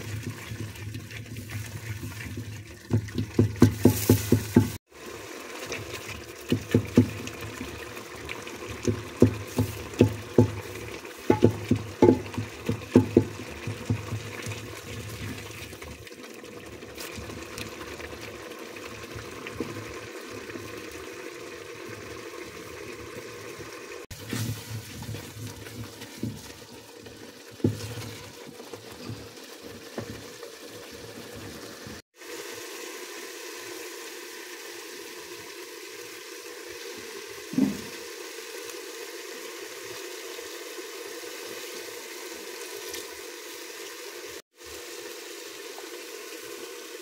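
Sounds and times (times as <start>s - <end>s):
stew plopping while stirred: 0.0s - 4.8s, 5.8s - 16.1s
stew simmering hiss: 0.0s - 47.0s.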